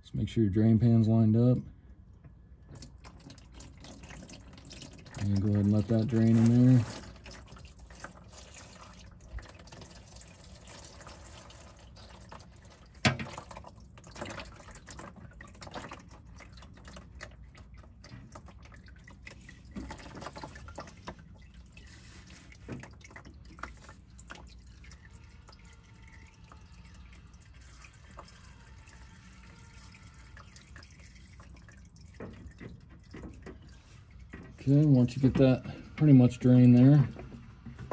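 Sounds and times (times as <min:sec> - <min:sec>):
fluid trickling into drain pan: 0:02.6 - 0:37.9.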